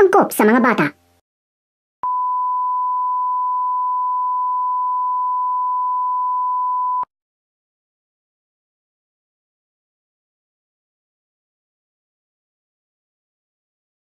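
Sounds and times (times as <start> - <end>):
steady test tone beep: 2.0 - 7.1.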